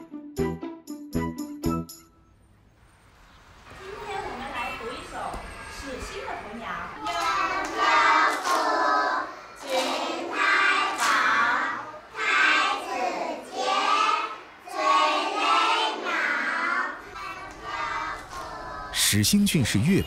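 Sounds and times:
hands clapping: 7.0s - 8.9s, 9.6s - 10.1s, 10.9s - 11.4s, 17.4s - 18.5s
children chanting in unison: 7.0s - 19.0s.

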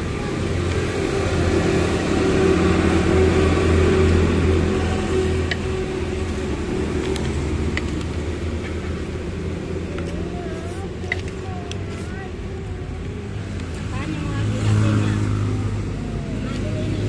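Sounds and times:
vehicle engine and road drone: 0.0s - 17.0s.

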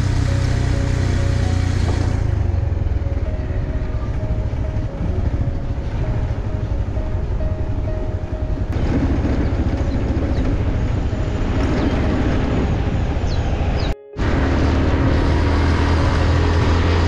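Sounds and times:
motorcycle engine: 0.0s - 17.0s
wind rush: 3.4s - 17.0s.

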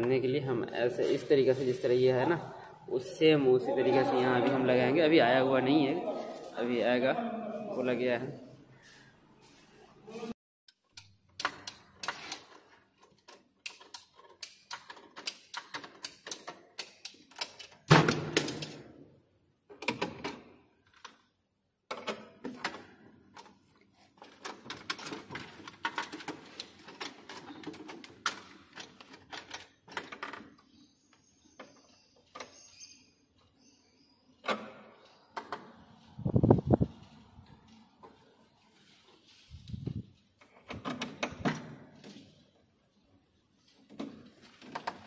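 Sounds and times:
metallic clicking of hand tools: 13.6s - 18.8s.

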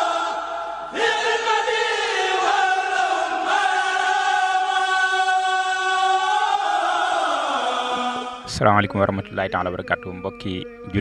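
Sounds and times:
group chanting held notes: 0.0s - 8.5s.

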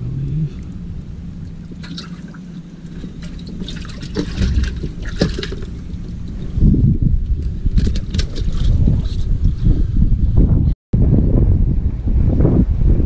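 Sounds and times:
low rumble of handling: 0.0s - 13.0s
water splashing and sloshing: 0.4s - 9.9s
fish thrashing in water: 1.3s - 9.4s.

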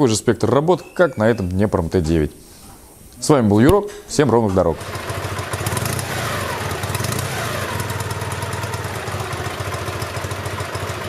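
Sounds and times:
motorcycle engine idling: 4.8s - 11.0s.

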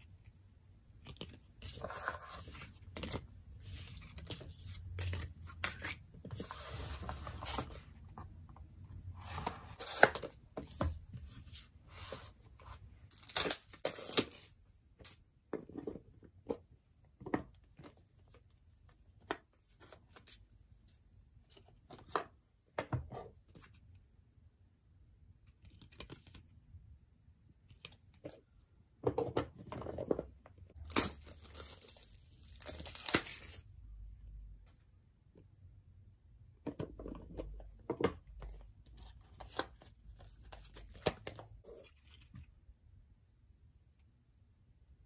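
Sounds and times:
card and paper rustling: 1.0s - 8.2s, 30.8s - 33.6s.

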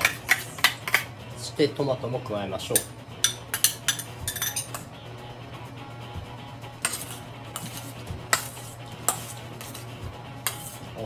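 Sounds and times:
metal spoon stirring in steel bowl: 0.0s - 1.1s, 2.7s - 4.8s, 6.8s - 11.0s
quiet background music: 0.0s - 11.0s
spoon clinking against bowl: 2.7s - 4.8s.

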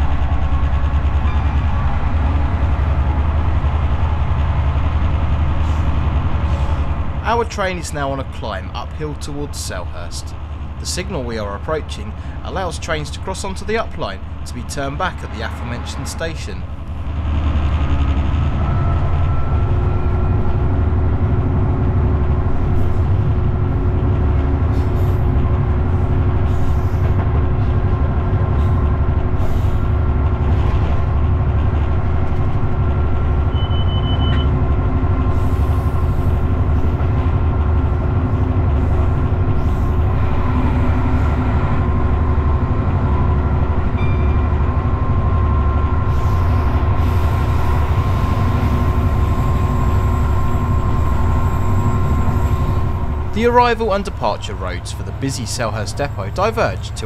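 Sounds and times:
diesel locomotive engine under load: 0.0s - 57.0s
train running on track: 0.0s - 57.0s
short high beep: 33.5s - 34.5s.

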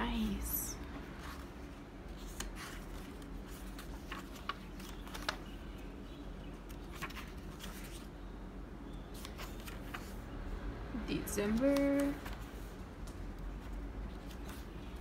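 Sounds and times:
paper pages turning: 1.2s - 5.6s, 6.5s - 8.1s, 9.1s - 10.2s, 11.5s - 15.0s.

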